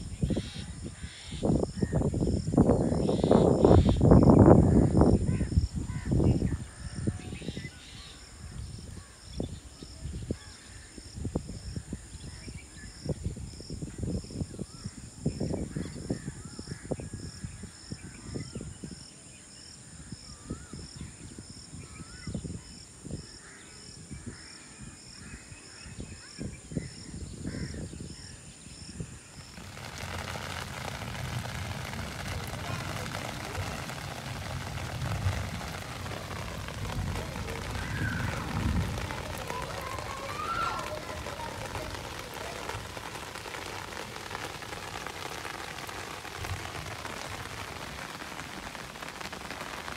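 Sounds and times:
rain falling on wet concrete: 0.0s - 49.9s
wind buffeting microphone: 0.0s - 49.9s
birds calling: 29.1s - 46.2s
crows cawing: 35.4s - 41.9s.

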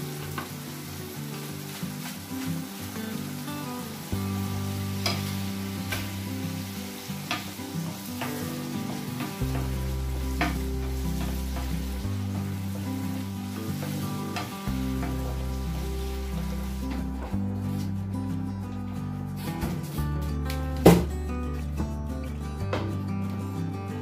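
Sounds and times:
tomatoes sizzling in a frying pan: 0.0s - 18.1s
low background music: 0.0s - 24.0s.

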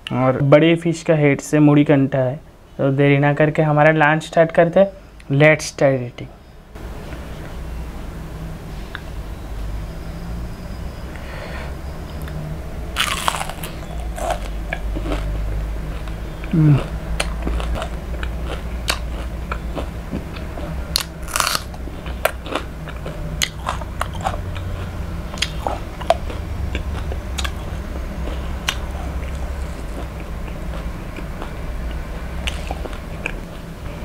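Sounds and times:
low steady hum: 0.0s - 34.0s
chewing crispy fried fish: 13.0s - 33.4s
biting raw onion: 20.2s - 24.6s.

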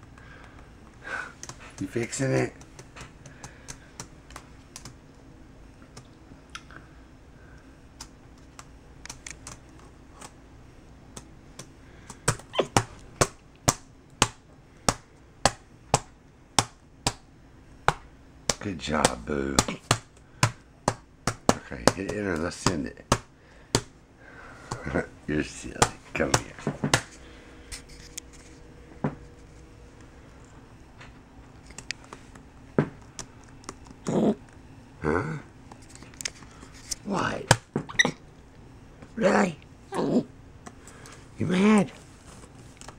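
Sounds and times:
hand slapping keyboard: 1.4s - 1.9s, 2.6s - 5.0s, 8.0s - 9.6s, 11.1s - 17.2s, 17.8s - 23.9s, 25.7s - 27.2s.

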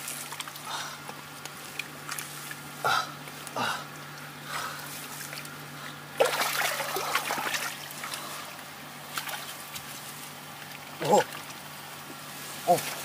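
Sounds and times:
hands splashing in muddy water: 6.2s - 8.3s.

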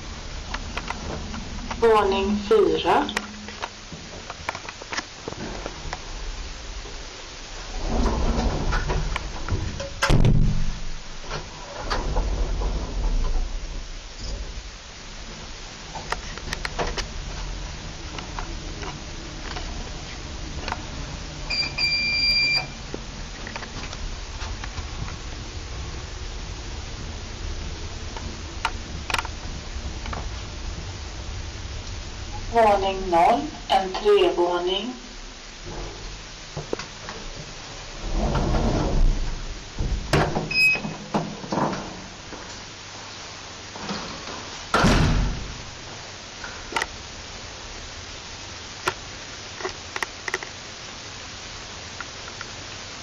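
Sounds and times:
elevator door rumbling: 0.0s - 4.3s, 7.5s - 34.8s, 35.6s - 42.4s, 43.8s - 46.0s
door clacking and knocking: 8.0s - 10.8s, 39.8s - 42.0s
electronic beep: 21.5s - 22.8s
lift car running in shaft: 37.4s - 40.6s.

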